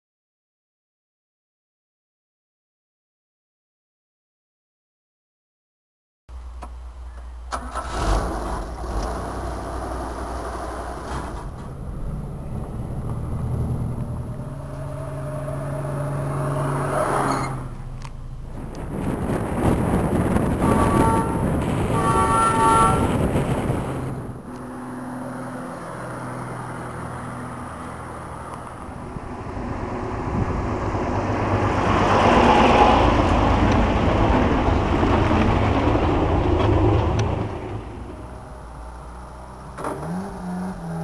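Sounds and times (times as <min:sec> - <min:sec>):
road noise: 0:06.3 - 0:41.0
truck engine passing: 0:07.5 - 0:41.0
truck horn blasts: 0:20.4 - 0:23.3.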